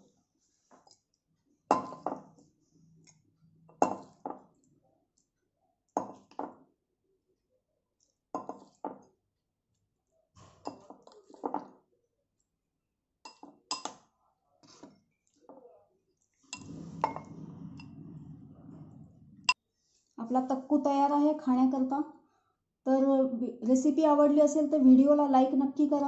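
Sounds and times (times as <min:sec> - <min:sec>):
metal spoon clinking glass bowl: 0:01.7 - 0:02.2, 0:03.7 - 0:04.4.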